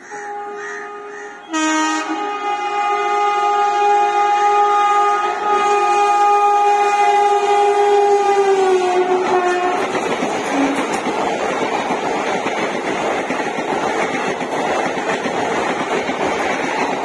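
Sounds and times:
locomotive horn blast: 0.0 - 11.0
train coaches rushing past: 0.0 - 17.0.

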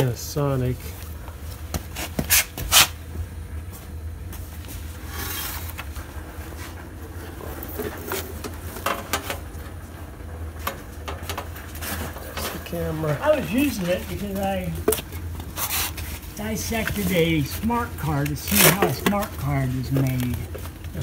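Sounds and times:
steady low hum: 0.0 - 21.0
short scraping rub: 4.8 - 5.8, 15.5 - 16.3.

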